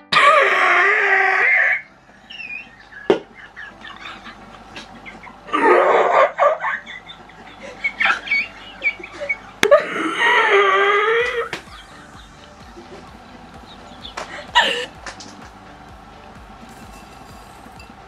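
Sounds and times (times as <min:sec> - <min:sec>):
woman laughing hard: 0:02.7 - 0:13.2, 0:14.0 - 0:15.2
woman giggling: 0:02.9 - 0:10.3, 0:14.3 - 0:15.0.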